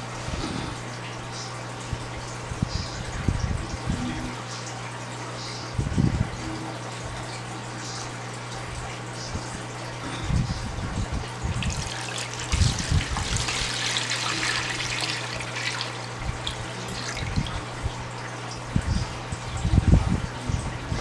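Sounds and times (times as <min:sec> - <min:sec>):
water pouring into plastic basin: 0:11.5 - 0:17.7.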